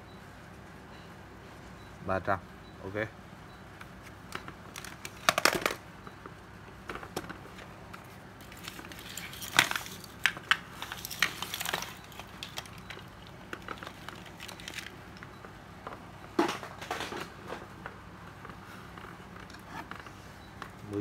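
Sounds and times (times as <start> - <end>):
plastic chargers clattering: 4.4 - 5.8, 8.4 - 14.9.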